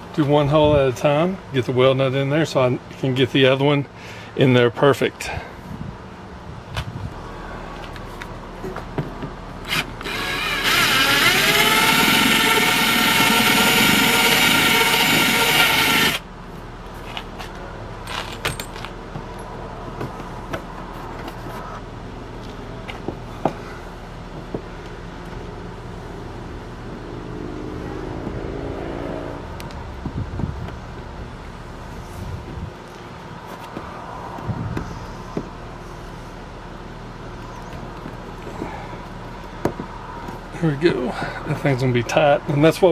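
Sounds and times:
cordless drill whining: 9.6 - 16.2.

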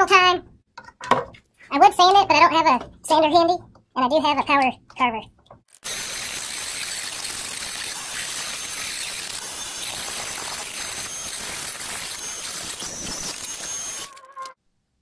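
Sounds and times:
rotary tool sanding wood: 5.7 - 14.3
high motor whine: 5.9 - 14.2.

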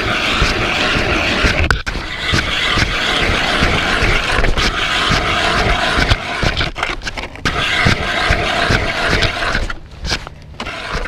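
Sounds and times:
hand ice auger grinding ice: 0.0 - 11.0.

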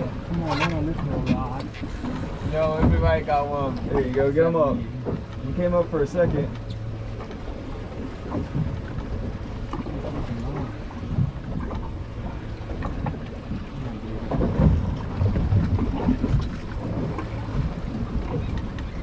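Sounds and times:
wind buffeting microphone: 0.0 - 19.0.

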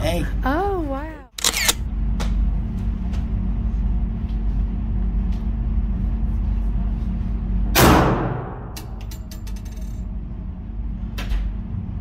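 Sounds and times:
low hum: 0.0 - 12.0
pistol shot echoing: 7.8 - 8.7.

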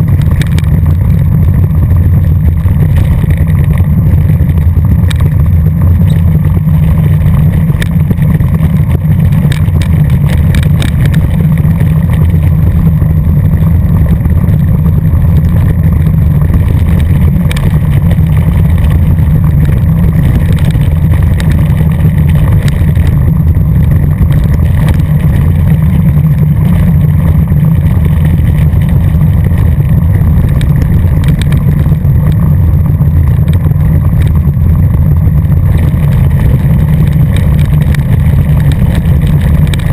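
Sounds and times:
wind buffeting microphone: 0.0 - 39.9
rattling clicks: 6.0 - 12.6.

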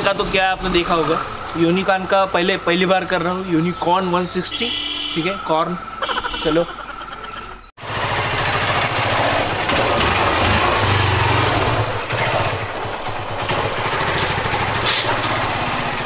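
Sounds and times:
motorcycle engine running: 7.8 - 16.0.

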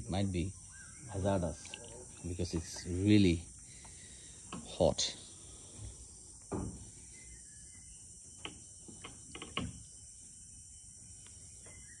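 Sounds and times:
high insect chorus: 0.0 - 12.0
feet sloshing in water: 1.6 - 3.0.

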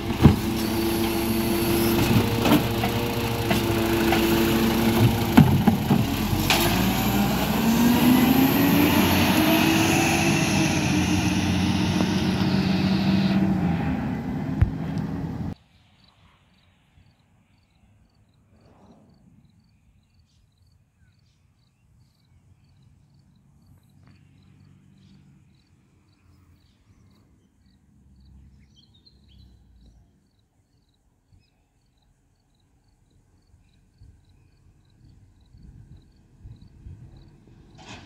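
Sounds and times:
distant garbage truck rumble: 0.0 - 15.6, 35.4 - 38.0
loud truck noise: 0.0 - 15.6.

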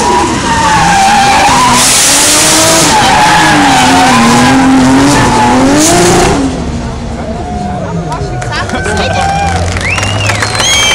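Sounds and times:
car engine at high revs: 0.0 - 7.3.

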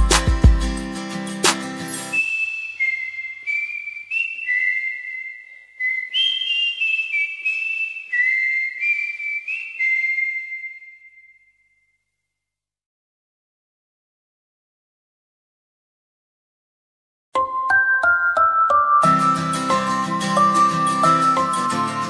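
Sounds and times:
whistled melody: 1.9 - 12.0, 17.4 - 22.0.

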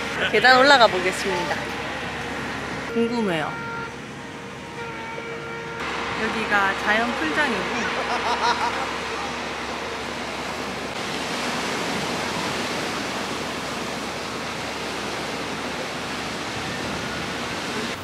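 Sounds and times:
ocean surf breaking on rocks: 5.8 - 18.0.

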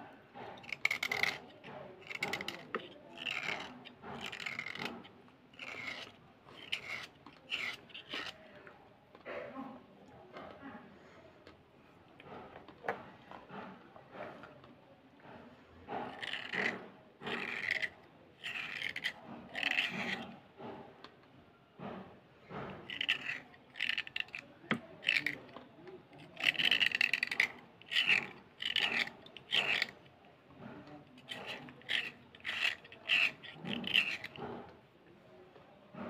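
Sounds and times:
blade scraping slate pencil: 0.3 - 8.7, 15.8 - 20.9, 22.5 - 34.8.

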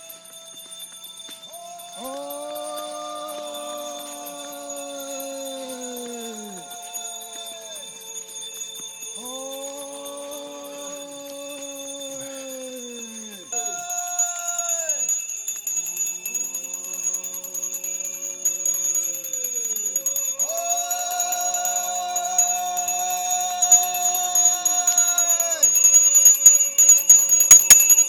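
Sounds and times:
monks calling long held notes: 0.0 - 28.0.

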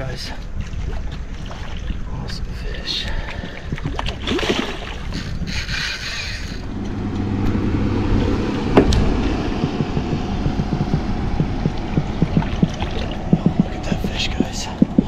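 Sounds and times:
low motor hum: 3.8 - 15.0.

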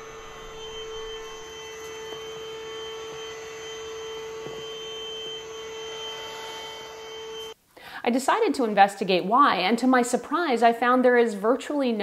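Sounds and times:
stick vacuum whining: 0.0 - 7.6.

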